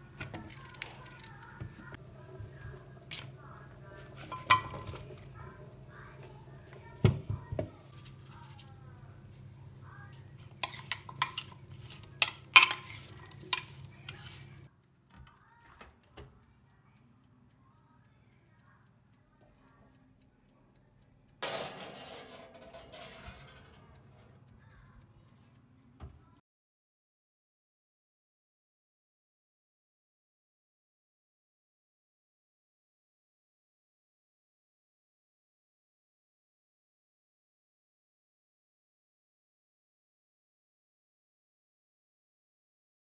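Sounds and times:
dishes and utensils clinking: 4.2 - 5.4, 10.5 - 14.7, 21.4 - 24.0.

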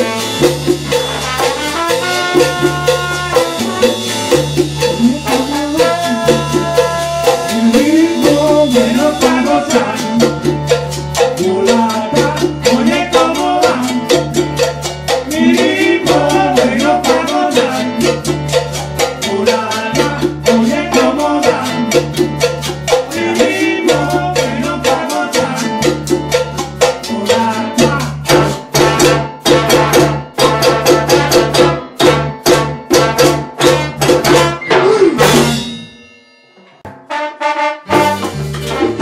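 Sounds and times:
salsa band playing: 0.0 - 39.0.

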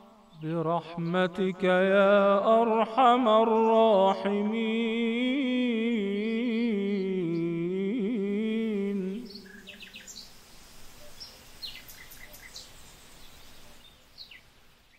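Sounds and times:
birds chirping: 0.0 - 14.9
soft outdoor ambience: 0.0 - 14.9
man chanting: 0.3 - 9.4.

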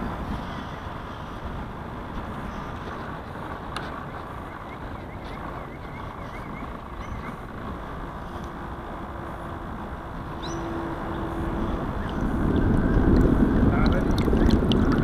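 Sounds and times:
wind buffeting microphone: 0.0 - 15.0
water splashing against hull: 11.4 - 15.0.

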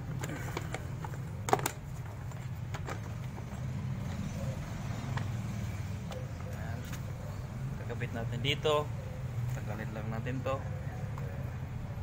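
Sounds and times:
sharp handling knocks and clicks: 0.1 - 4.2.

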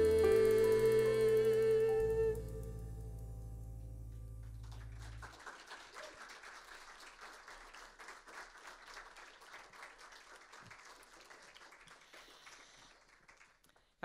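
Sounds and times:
band holding low chord: 0.0 - 5.5
audience applauding: 4.6 - 13.9.

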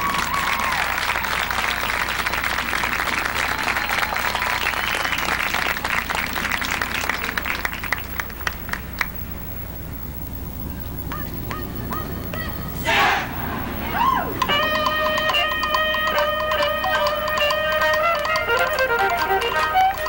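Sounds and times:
stadium crowd applauding: 0.0 - 9.2, 13.7 - 20.0.

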